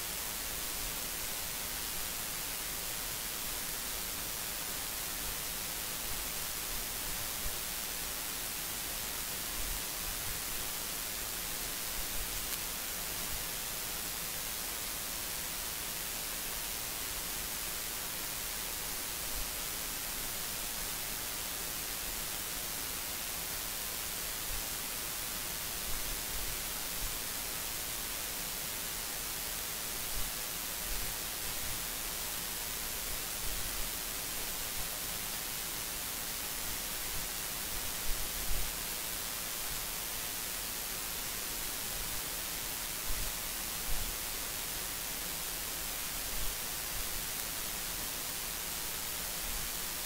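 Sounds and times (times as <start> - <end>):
recording hiss: 0.0 - 50.0.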